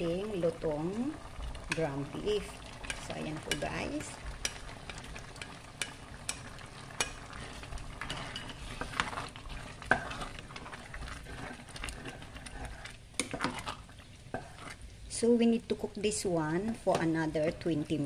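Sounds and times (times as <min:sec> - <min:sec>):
sauce sizzling: 0:00.0 - 0:18.0
wooden spoon scraping and stirring: 0:01.4 - 0:15.0.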